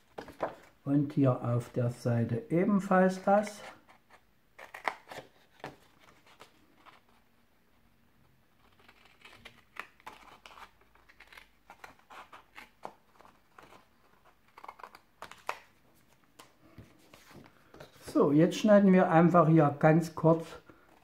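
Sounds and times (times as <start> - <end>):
paper rustling: 8.6 - 18.3.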